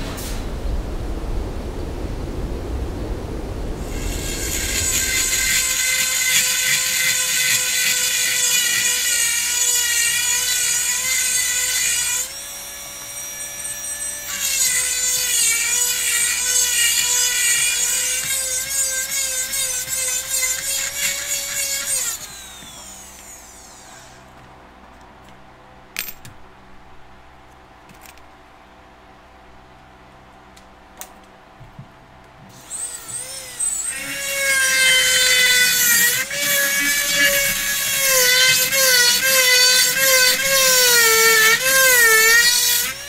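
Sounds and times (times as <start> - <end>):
high-pitched micromotor whine: 20.9 - 24.3.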